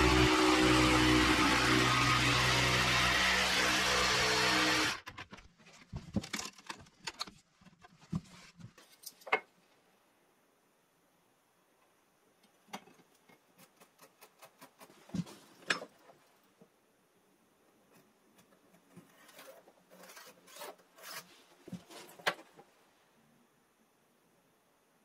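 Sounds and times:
tools and wood clicking: 5.0 - 8.0, 12.4 - 16.2.

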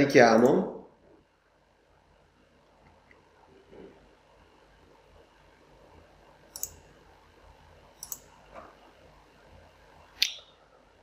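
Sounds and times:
computer mouse clicks: 6.5 - 6.8, 8.0 - 8.3.

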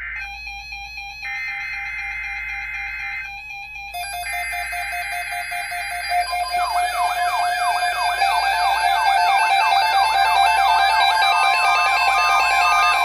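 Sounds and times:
pulsing electronic beeps: 5.9 - 13.0
fast rising siren sweeps: 6.1 - 13.0.

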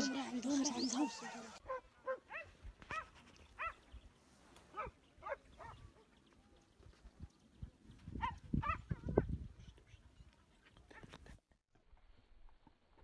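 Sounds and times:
dogs barking: 1.3 - 3.8, 4.7 - 6.1, 8.2 - 9.0.

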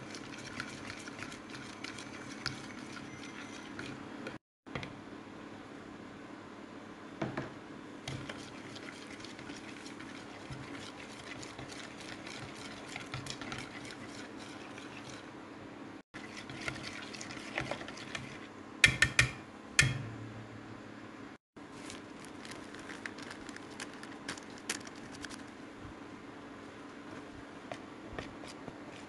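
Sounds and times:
utensil scraping glass bowl: 0.0 - 4.1, 8.1 - 15.3, 16.2 - 18.5.

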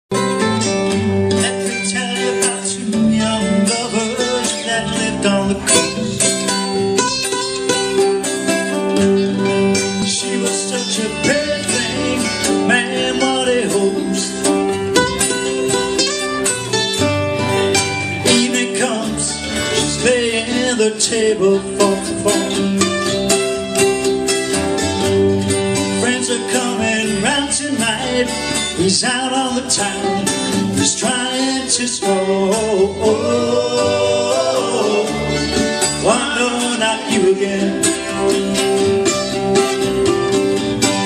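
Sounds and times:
strummed acoustic guitar: 0.1 - 41.0
upright double bass: 0.1 - 41.0
sliding fiddle melody: 32.1 - 41.0.

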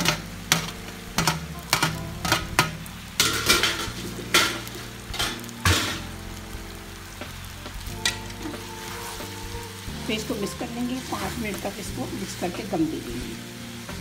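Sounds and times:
utensils knocking on metal pan: 0.0 - 6.1
low frying sizzle: 0.0 - 14.0.

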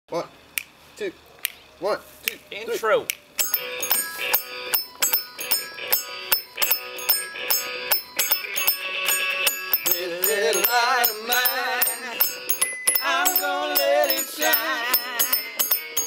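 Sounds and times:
man singing with vibrato: 8.4 - 16.0.

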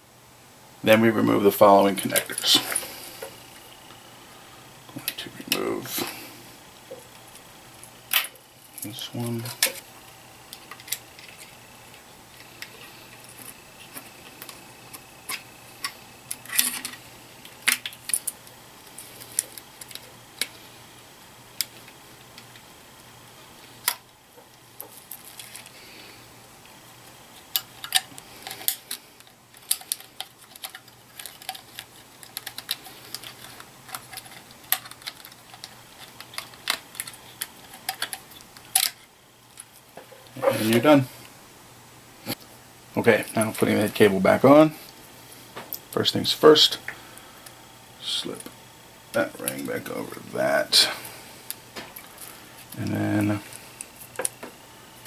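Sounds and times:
faint low hum: 0.0 - 55.0.

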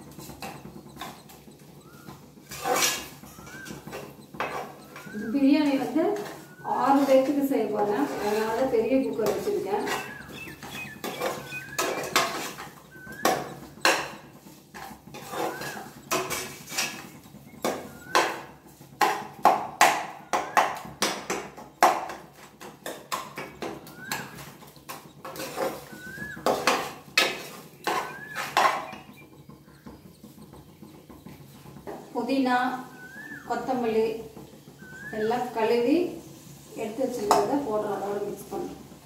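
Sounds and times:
ladle scraping metal pot: 0.0 - 19.4, 20.4 - 33.7
faint rising chirp: 0.1 - 2.4, 3.0 - 13.8, 15.2 - 16.1, 17.0 - 18.6, 23.8 - 24.5, 25.8 - 26.5, 27.6 - 31.7, 32.8 - 33.7, 34.6 - 35.5.

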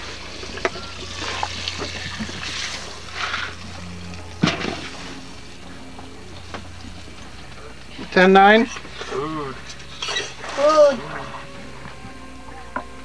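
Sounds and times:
steady low hum: 0.0 - 13.0
utensils and dishes clinking: 6.4 - 11.9.

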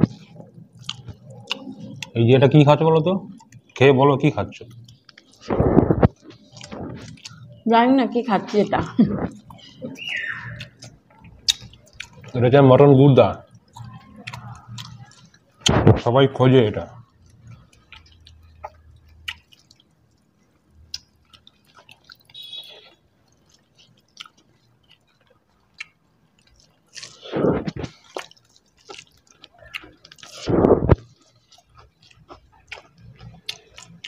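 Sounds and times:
wet mouth clicks: 0.0 - 2.2, 8.8 - 12.3
people chewing food: 0.0 - 34.0.

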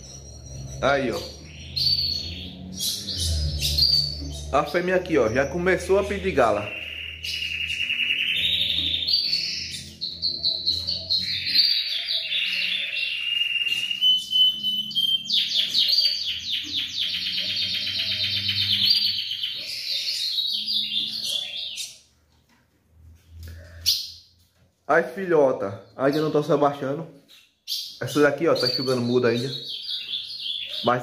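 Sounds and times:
bird chirps and whistles: 6.6 - 22.0.

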